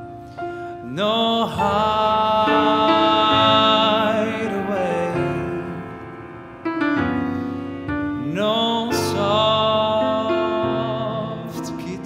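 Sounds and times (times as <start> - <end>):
piano: 0.0 - 12.0
man singing a slow ballad: 0.5 - 6.2, 7.9 - 12.0.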